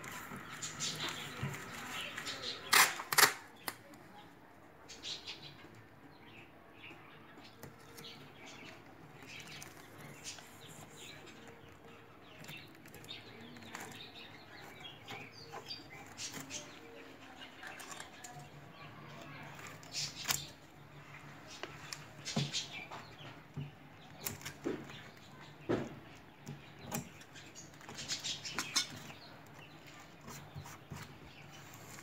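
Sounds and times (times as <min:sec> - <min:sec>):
tape crackling on plastic film: 0:00.0 - 0:04.1, 0:07.5 - 0:20.7.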